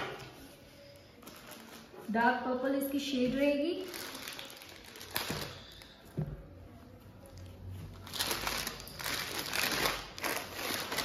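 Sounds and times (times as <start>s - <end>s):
cloth rustling and crinkling: 0.1s - 2.2s, 3.8s - 6.5s, 7.3s - 11.0s.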